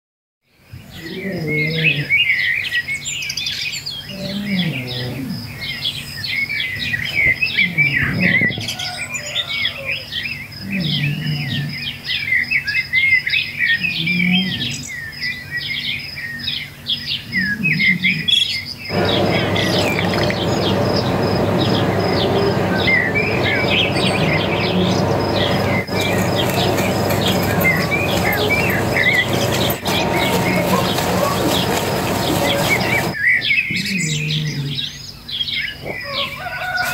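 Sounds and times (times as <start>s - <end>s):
small birds chirping: 0.7s - 36.9s
steady rushing noise: 18.9s - 33.2s
lower bird call: 18.9s - 34.9s.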